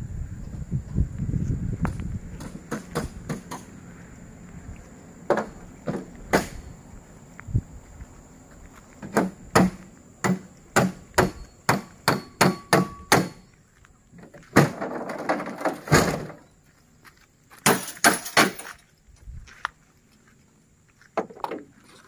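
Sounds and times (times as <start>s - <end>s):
tailgate rattling open: 14.5s - 16.4s.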